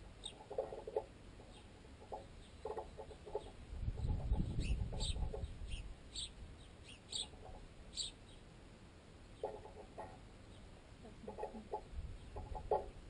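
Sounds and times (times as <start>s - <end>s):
birds pecking knocks: 0.0s - 5.5s, 9.4s - 10.4s, 11.2s - 13.0s
sparrow chirps: 0.2s - 0.4s, 2.3s - 8.5s.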